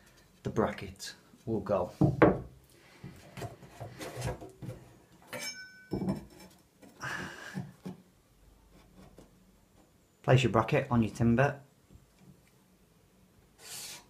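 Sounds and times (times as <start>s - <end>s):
short metallic clink: 5.3s - 6.0s.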